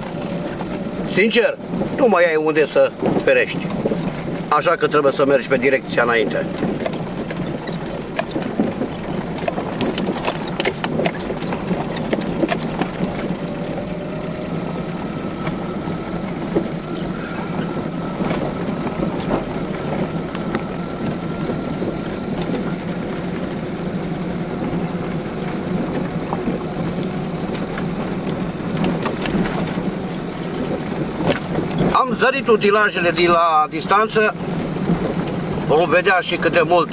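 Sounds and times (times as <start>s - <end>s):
road and tyre rumble: 0.0s - 36.9s.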